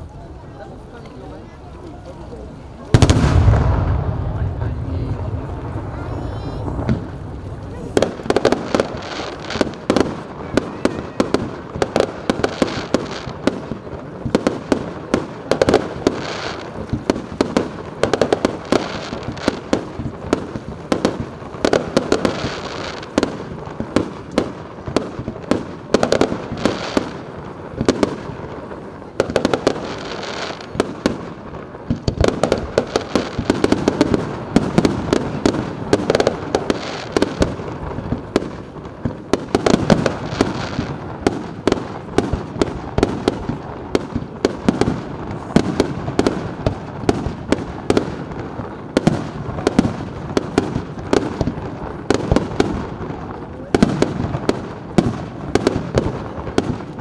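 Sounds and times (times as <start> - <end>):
fireworks bursting with sharp bangs: 0.0 - 57.0.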